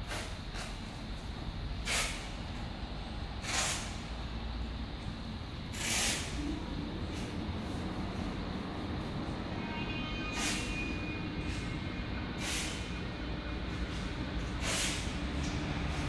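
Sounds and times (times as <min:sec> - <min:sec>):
bursts of hissing: 0:03.4 - 0:04.1, 0:05.7 - 0:06.5, 0:14.6 - 0:15.2.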